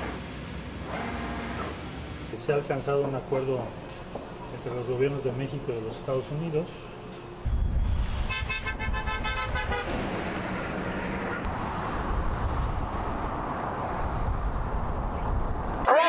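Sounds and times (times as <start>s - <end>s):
traffic road noise: 0.0s - 16.0s
car horn toots: 8.2s - 11.5s.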